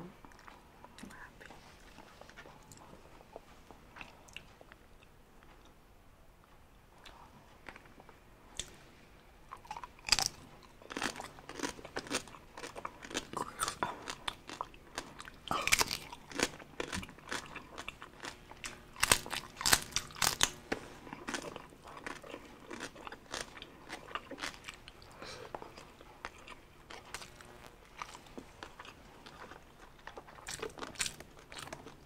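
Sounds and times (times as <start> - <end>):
crunchy pork skin chewing: 9.5 - 32.0.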